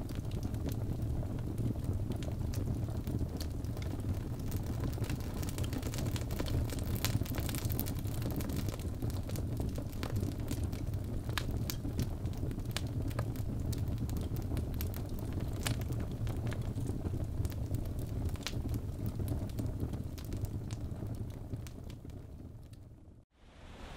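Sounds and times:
wood fire crackling: 0.0 - 23.0
fire low rumble: 0.0 - 23.9.

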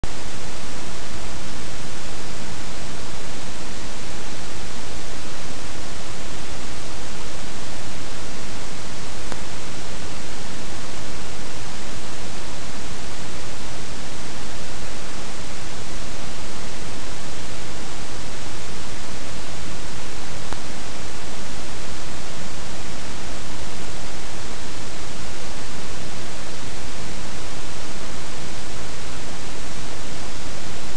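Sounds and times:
loud static hiss: 0.0 - 30.9.

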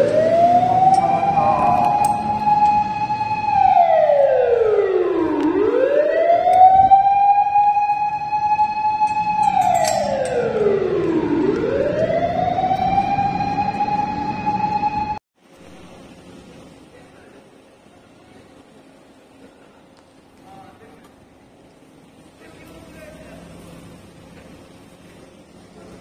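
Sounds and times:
fire engine siren wailing: 0.0 - 15.2.

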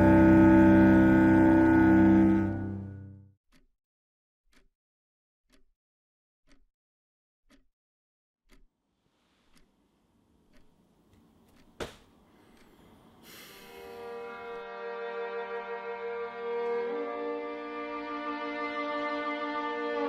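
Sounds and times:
clock ticking: 3.5 - 3.7, 4.5 - 4.7, 5.5 - 5.7, 6.5 - 6.7, 7.5 - 7.7, 8.5 - 8.8, 9.4 - 9.8, 10.4 - 13.2
room noise hiss: 9.0 - 14.4.

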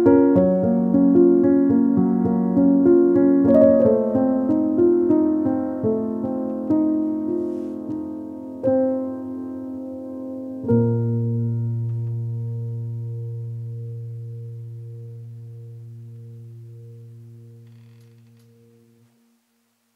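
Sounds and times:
piano chords: 0.0 - 19.1.

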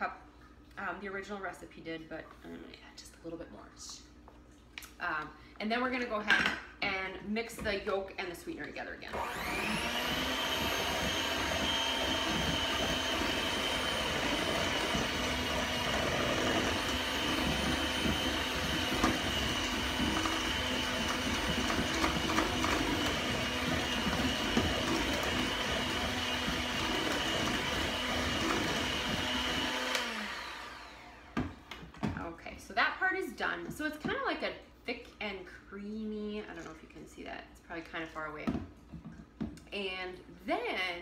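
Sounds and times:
electric hand mixer running: 9.1 - 31.8.

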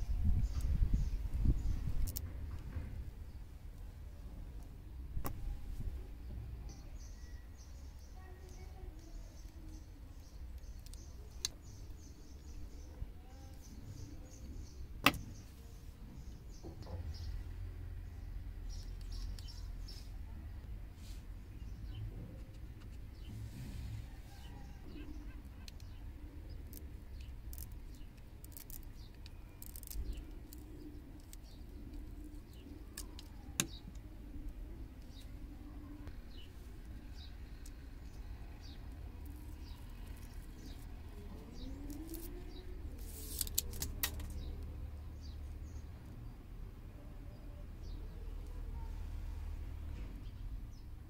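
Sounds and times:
small birds chirping: 0.0 - 51.0
small clicks and scrapes: 21.9 - 34.1, 36.0 - 44.7.

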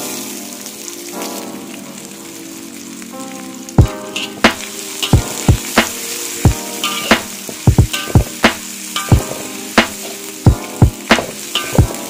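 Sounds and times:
shallots sizzling in hot oil: 3.9 - 12.0.

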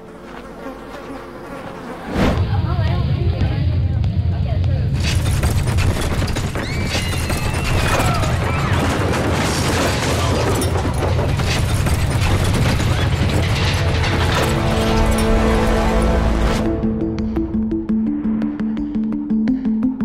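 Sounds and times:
deep rumble: 2.3 - 19.0
buildings crashing and cracking: 4.9 - 16.5.

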